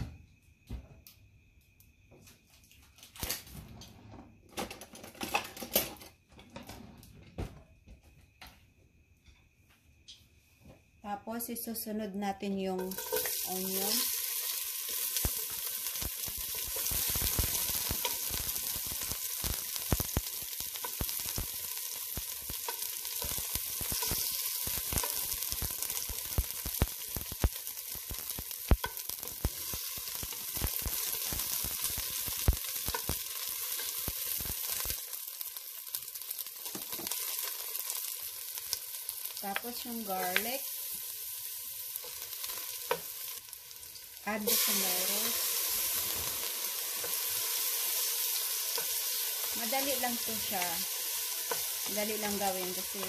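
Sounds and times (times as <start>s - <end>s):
onion sizzling in oil: 12.6s - 53.0s.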